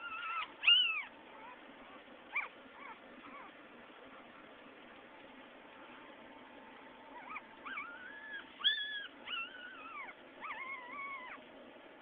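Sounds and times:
puppies whining: 0:00.0 - 0:03.7, 0:07.0 - 0:11.6.

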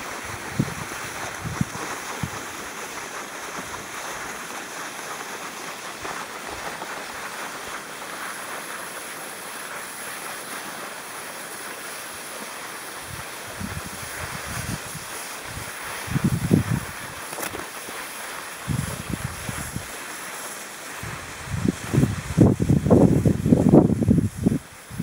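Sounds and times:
wind on microphone: 0:00.0 - 0:02.8, 0:13.0 - 0:17.7, 0:18.6 - 0:20.0, 0:21.0 - 0:25.0
skis gliding on snow: 0:00.0 - 0:25.0.

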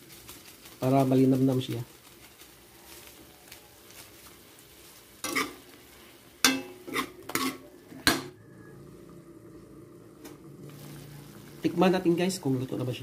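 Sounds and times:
utensil scraping against wok: 0:00.0 - 0:08.1
faint frying sizzle: 0:00.0 - 0:13.0.

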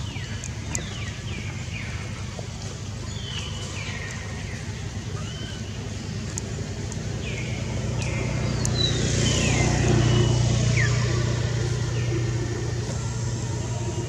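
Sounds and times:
vehicle engine passing: 0:06.4 - 0:14.0.

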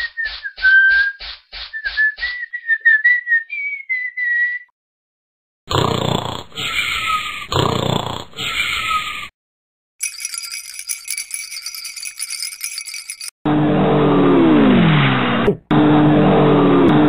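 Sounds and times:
person whistling a tune: 0:00.0 - 0:04.7
cartoon snores: 0:05.7 - 0:09.1.

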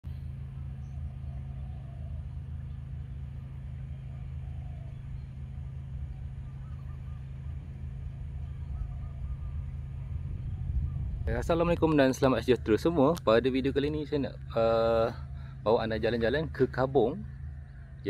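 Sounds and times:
low mechanical hum: 0:00.0 - 0:18.0
faint short bird calls: 0:00.8 - 0:11.2, 0:14.7 - 0:15.7.

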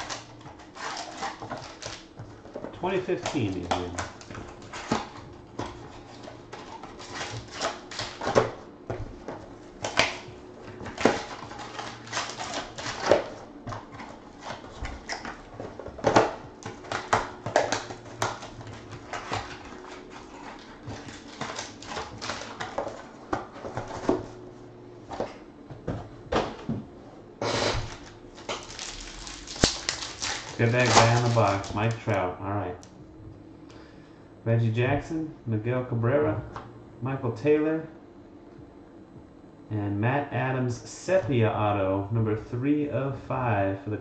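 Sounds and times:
card pack wrappers crinkling: 0:00.0 - 0:02.1, 0:02.8 - 0:05.0, 0:09.8 - 0:24.2, 0:27.9 - 0:32.3.

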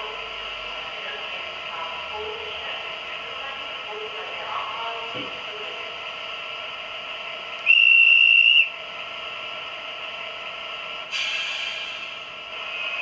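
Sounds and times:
diesel locomotive engine idling: 0:00.0 - 0:13.0
shrill whistle blast: 0:07.6 - 0:08.7
air hiss burst: 0:11.1 - 0:13.0.

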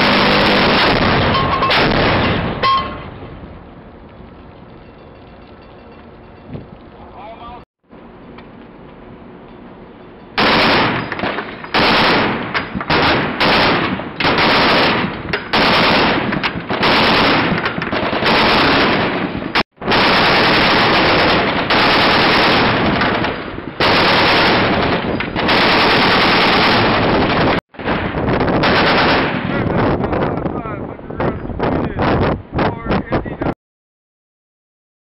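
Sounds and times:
heavy machine gun bursts: 0:00.0 - 0:02.5, 0:10.4 - 0:27.6.

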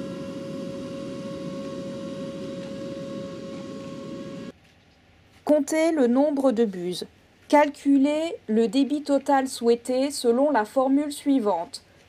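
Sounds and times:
sprayer whining and rushing: 0:00.0 - 0:04.5.

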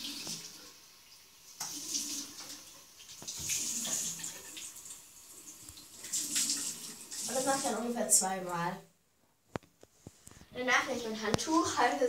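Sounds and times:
water splashing onto face: 0:06.0 - 0:07.8.

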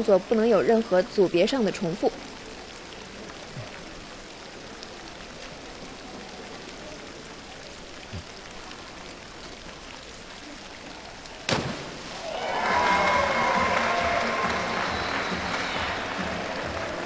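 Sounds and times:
sprinkler water hissing: 0:00.0 - 0:17.0
diver splashing into water: 0:11.5 - 0:15.3
applause: 0:12.2 - 0:17.0
music: 0:12.6 - 0:17.0.

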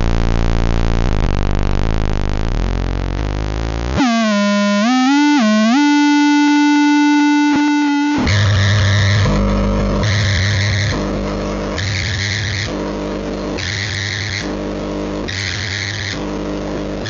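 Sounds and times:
buzzing electronic noise: 0:00.0 - 0:17.0
wobbling synth tone: 0:02.6 - 0:12.2.

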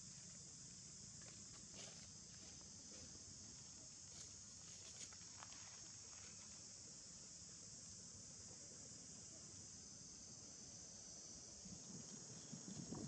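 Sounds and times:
high-pitched insect drone: 0:03.6 - 0:13.0.

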